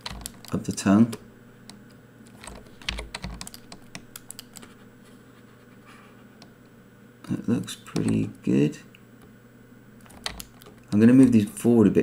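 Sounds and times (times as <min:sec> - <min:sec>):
keyboard and mouse clicking: 0:00.0 - 0:01.2, 0:02.3 - 0:04.7, 0:07.9 - 0:08.2, 0:10.0 - 0:11.4
faint steady hum: 0:00.0 - 0:12.0.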